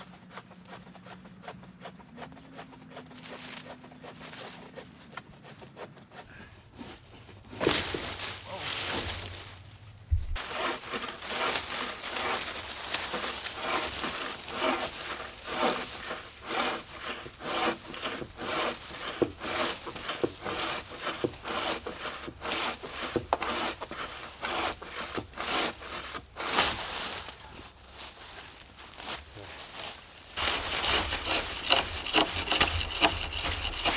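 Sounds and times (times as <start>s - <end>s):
bow saw rasping through wood: 0.0s - 9.1s, 10.4s - 27.6s, 28.9s - 33.9s.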